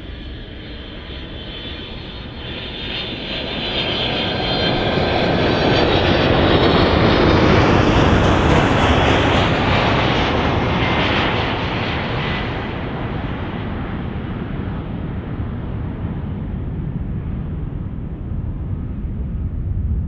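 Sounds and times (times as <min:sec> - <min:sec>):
jet rush with faint whine: 0:00.0 - 0:08.4, 0:15.0 - 0:20.0
jet engines passing overhead: 0:00.0 - 0:20.0.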